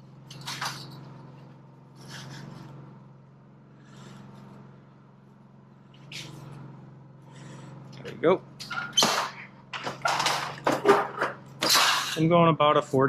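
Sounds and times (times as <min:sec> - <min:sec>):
steady low hum: 0:00.0 - 0:13.0
metal trim scraping: 0:00.2 - 0:02.9, 0:08.6 - 0:12.4.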